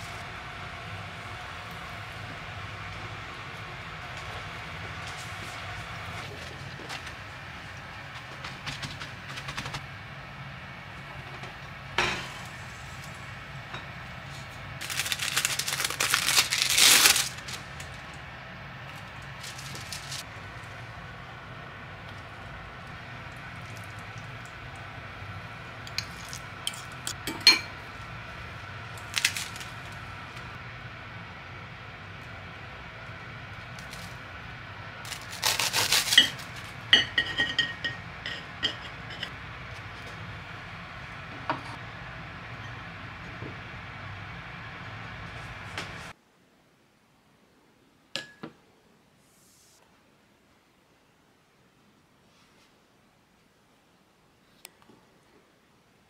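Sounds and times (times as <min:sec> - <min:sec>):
plastic wrapper crinkling: 0:14.8 - 0:18.0, 0:19.3 - 0:20.2, 0:35.1 - 0:36.5.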